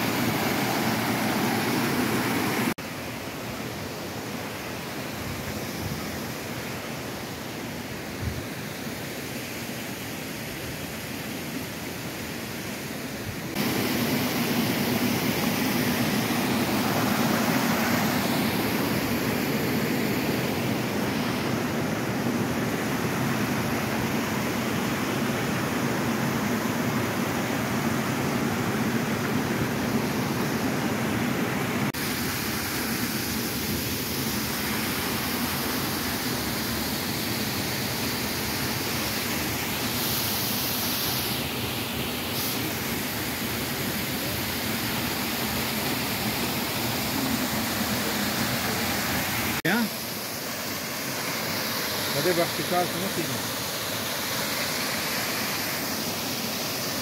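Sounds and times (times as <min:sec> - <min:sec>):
waterfall cascading over rocks: 0:00.0 - 0:57.0.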